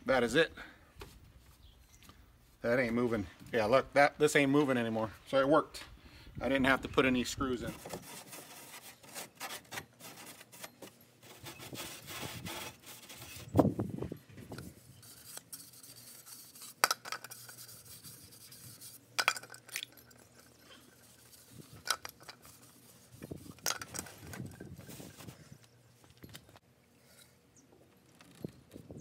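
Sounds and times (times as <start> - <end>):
rag rubbing on plastic: 11.2 - 13.6, 20.9 - 25.4.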